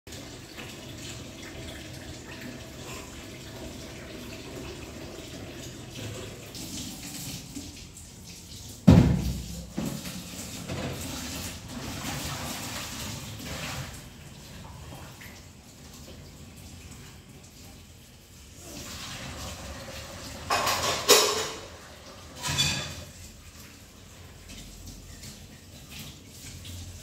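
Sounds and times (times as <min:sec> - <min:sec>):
washing-up sounds: 0:00.1 - 0:27.0
tap running into a sink: 0:08.6 - 0:12.8.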